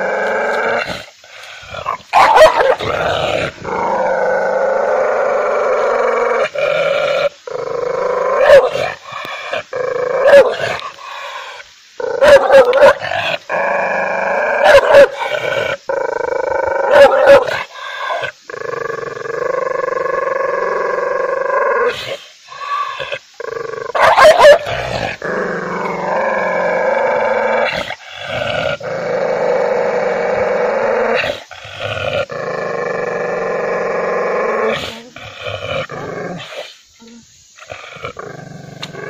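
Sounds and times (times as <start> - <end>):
dog barking: 2.1 - 2.8, 24.0 - 24.7.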